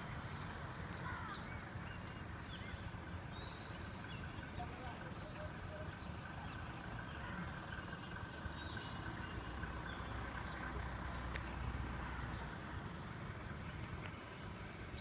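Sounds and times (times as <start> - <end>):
distant road traffic hum: 0.0 - 15.0.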